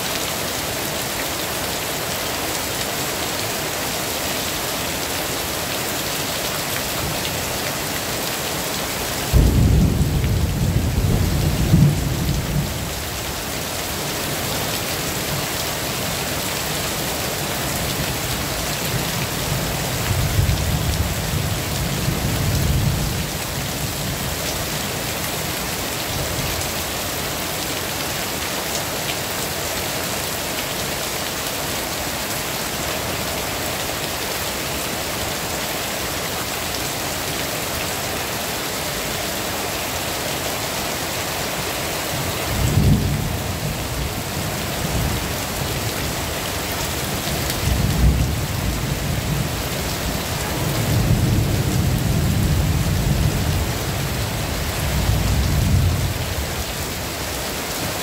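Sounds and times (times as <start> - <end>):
heavy rain falling: 0.0 - 58.0
thunder rumbling: 9.3 - 12.8.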